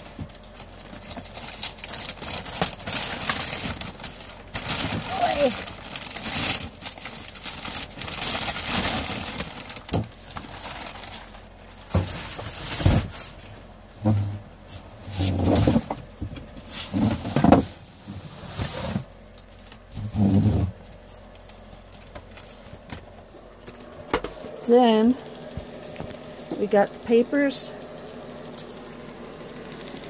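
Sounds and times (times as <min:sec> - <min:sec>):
plastic bag rustling: 0:00.0 - 0:23.1.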